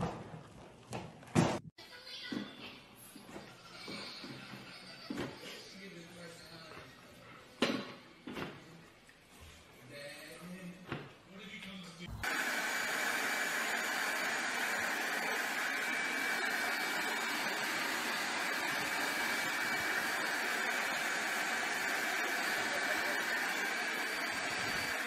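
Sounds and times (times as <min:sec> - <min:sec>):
handheld blower running: 0:12.1 - 0:25.0.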